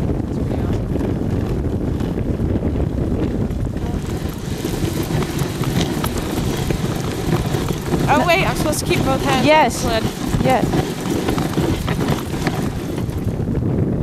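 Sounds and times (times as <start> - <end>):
sled runners on snow: 0.0 - 14.0
wind buffeting microphone: 0.0 - 14.0
scrapes and clicks: 3.7 - 13.4.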